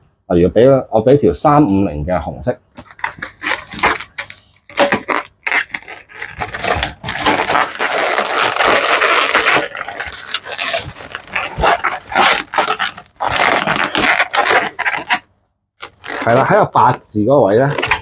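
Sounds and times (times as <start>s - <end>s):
balloons squeaking and rubbing: 2.7s - 18.0s.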